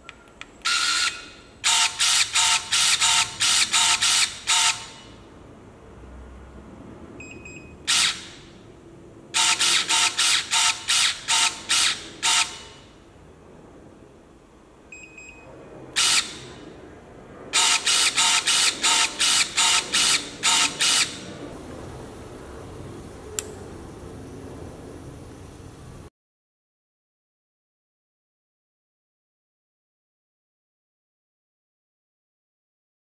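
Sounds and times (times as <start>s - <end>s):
electric pruning shears snapping: 0.4s - 5.0s, 9.4s - 12.7s, 17.6s - 21.2s
faint short beeps: 7.2s - 7.8s, 14.9s - 15.5s
sharp click: 23.4s - 23.6s.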